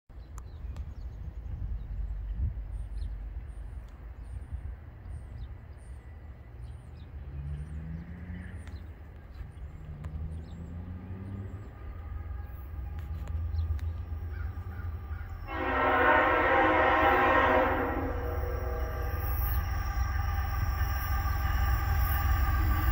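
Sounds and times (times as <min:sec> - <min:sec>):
train air horn: 0:15.1 - 0:22.7.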